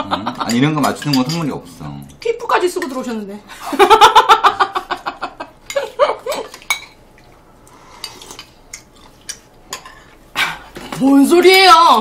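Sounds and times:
laughter: 0.0 - 0.6, 3.6 - 6.5
cutlery clinking on dishes: 0.4 - 1.5, 5.7 - 7.0.

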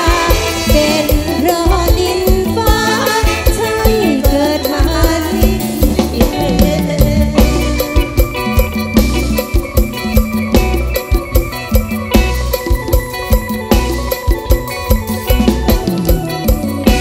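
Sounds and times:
person singing: 0.0 - 8.8
heavy steady drum beat: 0.0 - 17.0
live band music: 0.0 - 17.0.

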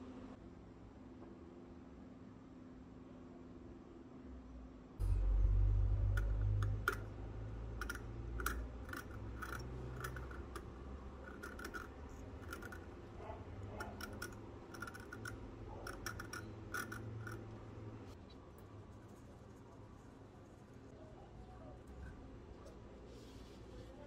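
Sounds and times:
fishing reel clicks and scrapes: 7.8 - 13.0, 13.7 - 17.5.

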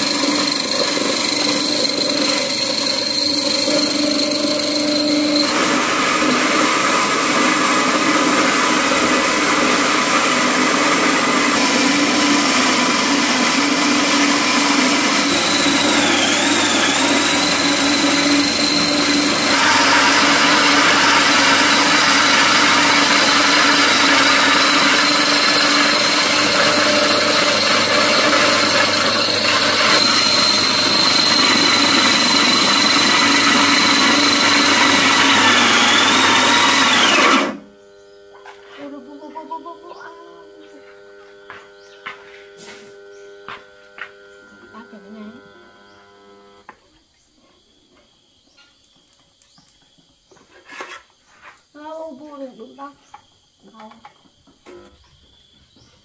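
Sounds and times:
electric grain mill grinding: 0.0 - 46.8.

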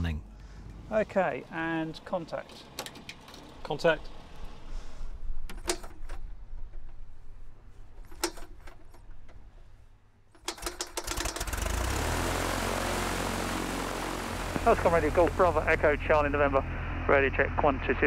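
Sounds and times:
engine popping: 10.5 - 16.8
aircraft engine idling: 11.0 - 18.0.

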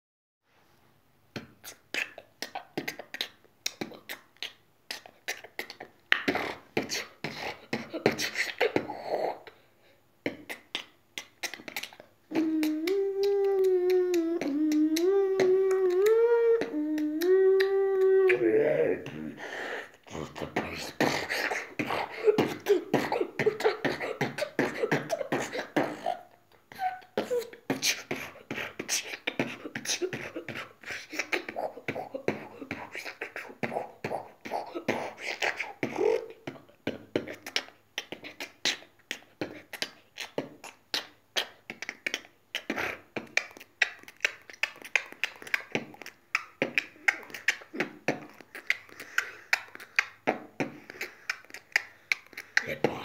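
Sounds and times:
beatboxing: 1.3 - 9.6, 10.2 - 53.0
person humming: 10.2 - 53.0.

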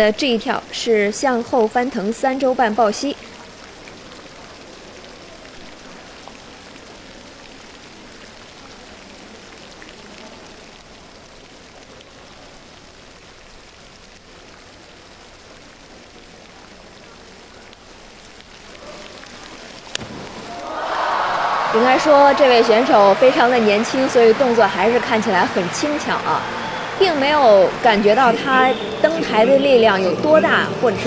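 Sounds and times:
hiss of water in a pool: 1.0 - 21.7.

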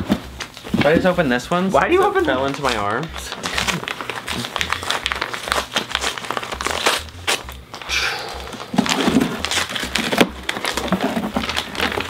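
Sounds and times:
packaging crinkling and rustling: 0.0 - 12.0
scissors cutting packing tape: 2.6 - 12.0.

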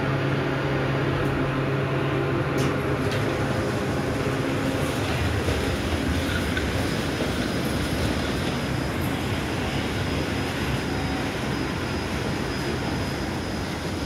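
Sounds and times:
rail platform rumble: 0.0 - 14.0
elevator doors sliding open: 2.5 - 5.6.

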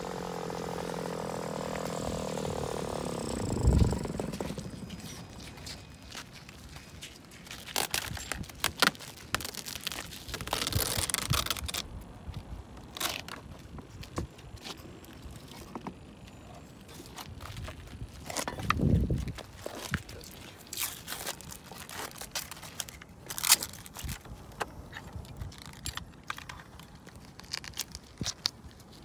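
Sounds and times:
plastic film crinkling: 3.6 - 15.6, 16.8 - 29.0
rustling: 16.8 - 29.0.

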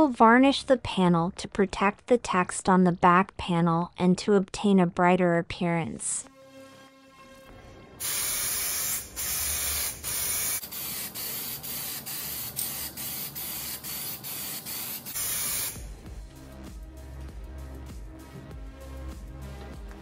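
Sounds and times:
aerosol spray can hissing: 8.0 - 15.9.

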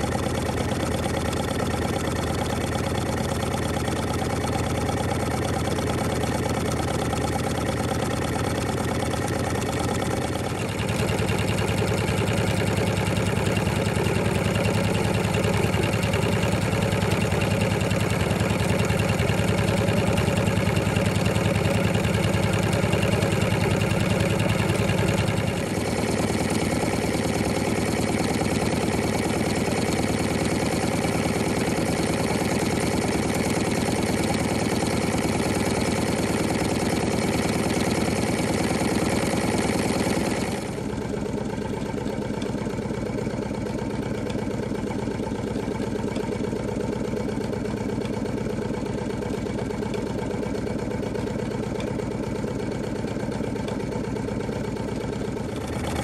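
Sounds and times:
toy engine mechanical clatter: 0.0 - 41.0.

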